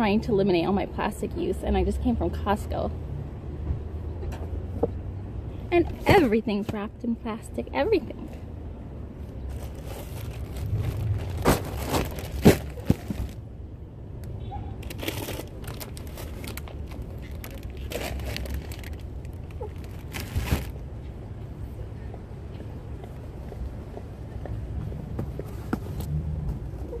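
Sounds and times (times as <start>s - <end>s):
steady low rumble: 8.1s - 27.0s
scraping and rustling: 9.5s - 13.4s.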